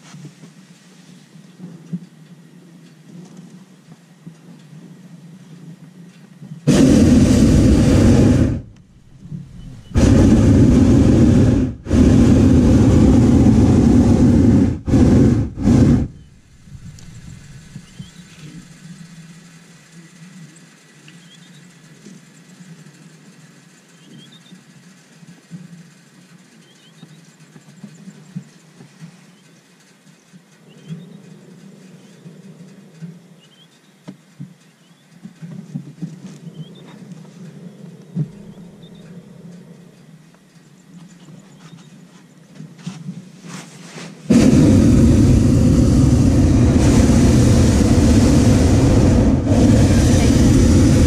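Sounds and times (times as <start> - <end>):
faint low hum: 0.0 - 51.0
propane burner blasts: 6.6 - 19.8, 42.7 - 51.0.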